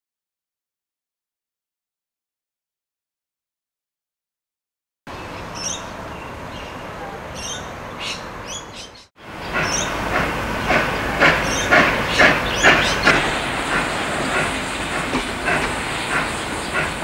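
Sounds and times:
birds chirping: 0:05.1 - 0:17.0
steam locomotive exhaust beats: 0:09.2 - 0:17.0.

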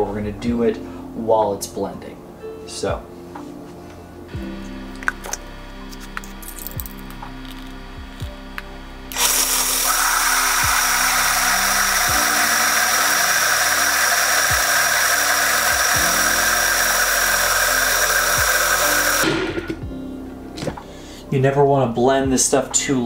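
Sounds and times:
background music with a beat: 0:02.9 - 0:09.5, 0:14.4 - 0:21.0
blender motor whining: 0:09.1 - 0:19.3.

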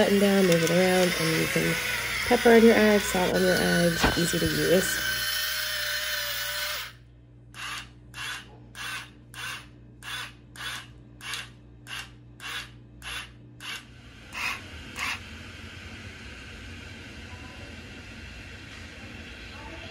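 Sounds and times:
electric grinder motor whirring: 0:00.0 - 0:07.0, 0:07.6 - 0:15.4.

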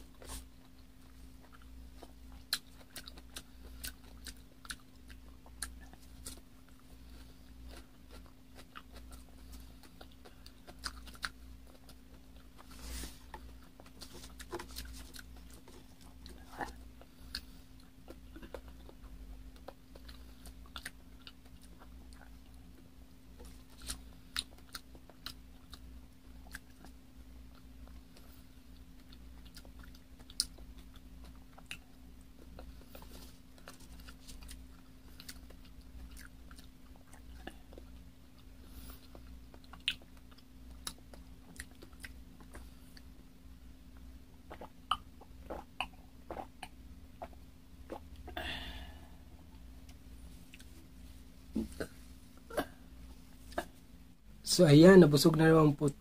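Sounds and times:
chewing soft fruit: 0:00.0 - 0:56.0
faint steady hum: 0:00.0 - 0:56.0.

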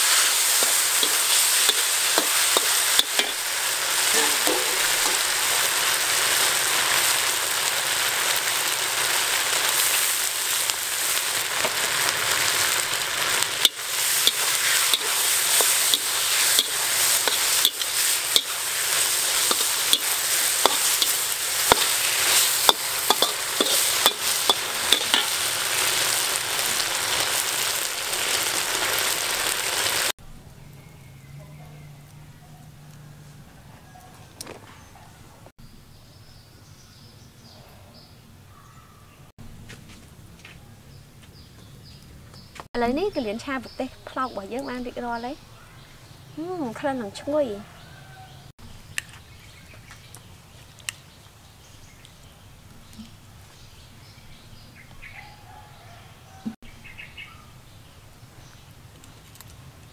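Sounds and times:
metal spatula scraping wok: 0:00.0 - 0:07.0, 0:09.6 - 0:29.8
food sizzling in a wok: 0:00.0 - 0:30.2.

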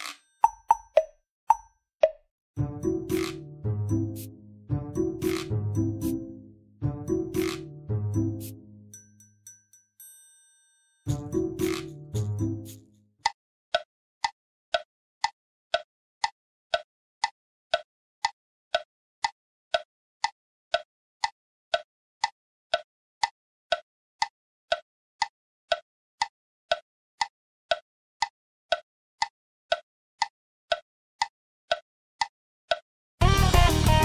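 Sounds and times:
tick-tock ticks: 0:00.1 - 0:02.2, 0:02.8 - 0:03.5, 0:05.2 - 0:06.2, 0:07.3 - 0:08.5, 0:11.1 - 0:32.9.

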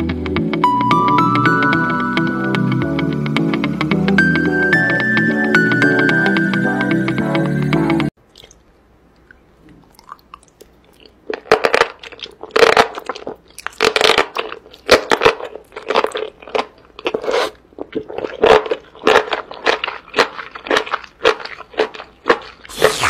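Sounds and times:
wet crunching and slurping chews: 0:08.3 - 0:23.0.

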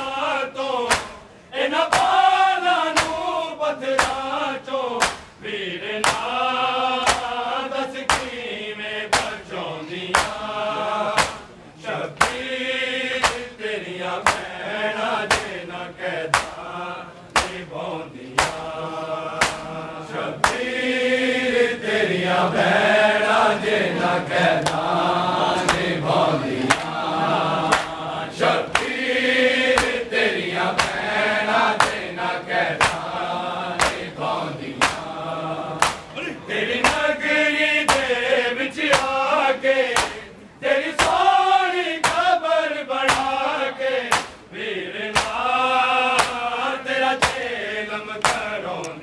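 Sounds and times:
men chanting a lament: 0:00.0 - 0:49.0
hands slapping chests: 0:00.8 - 0:01.2, 0:01.9 - 0:02.2, 0:02.9 - 0:03.3, 0:03.9 - 0:04.3, 0:05.0 - 0:05.4, 0:06.0 - 0:06.3, 0:07.0 - 0:07.4, 0:08.1 - 0:08.4, 0:09.1 - 0:09.5, 0:10.1 - 0:10.5, 0:11.1 - 0:11.6, 0:12.2 - 0:12.5, 0:13.2 - 0:13.6, 0:14.2 - 0:14.5, 0:15.2 - 0:15.6, 0:16.3 - 0:16.6, 0:17.3 - 0:17.7, 0:18.3 - 0:18.8, 0:19.4 - 0:19.8, 0:20.4 - 0:20.7, 0:24.5 - 0:24.9, 0:25.6 - 0:26.0, 0:26.6 - 0:27.0, 0:27.6 - 0:28.0, 0:28.6 - 0:29.1, 0:29.7 - 0:30.1, 0:30.7 - 0:31.1, 0:31.7 - 0:32.1, 0:32.7 - 0:34.2, 0:34.8 - 0:35.2, 0:35.8 - 0:36.2, 0:36.8 - 0:37.1, 0:37.9 - 0:38.2, 0:38.9 - 0:39.2, 0:39.9 - 0:40.2, 0:41.0 - 0:41.2, 0:42.0 - 0:42.4, 0:43.1 - 0:43.4, 0:44.1 - 0:44.5, 0:45.1 - 0:46.5, 0:47.2 - 0:47.5, 0:48.2 - 0:49.0.

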